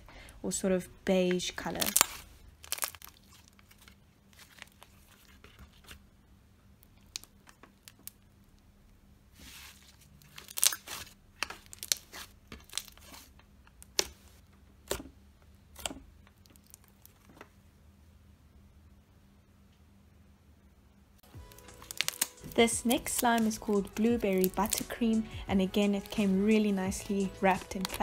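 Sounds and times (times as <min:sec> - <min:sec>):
sticky slime crackles: 0:01.2 - 0:06.1, 0:06.8 - 0:08.4, 0:09.4 - 0:17.5, 0:21.4 - 0:28.0
slime snapping and popping: 0:01.8 - 0:03.2, 0:10.4 - 0:12.9, 0:21.5 - 0:25.0, 0:27.5 - 0:28.0
slime tearing: 0:01.8 - 0:05.9, 0:09.4 - 0:15.1, 0:21.4 - 0:25.1, 0:26.9 - 0:28.0.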